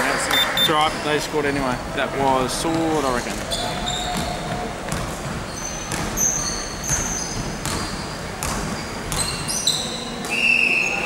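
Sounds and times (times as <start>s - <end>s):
basketball bouncing: 2.6s - 9.6s
sneakers squeaking on court: 2.6s - 11.0s.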